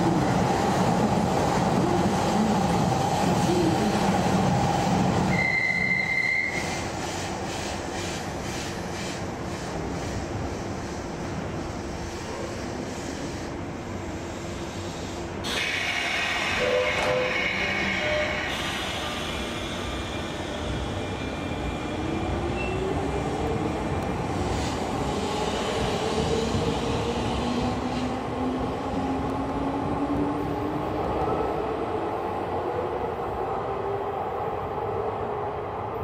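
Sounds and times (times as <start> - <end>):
air brake hiss: 14.3 - 20.4.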